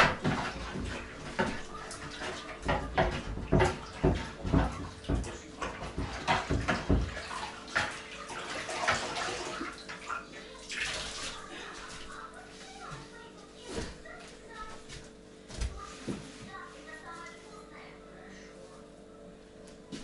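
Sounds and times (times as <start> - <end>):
water splashing in a basin: 0.0 - 12.4.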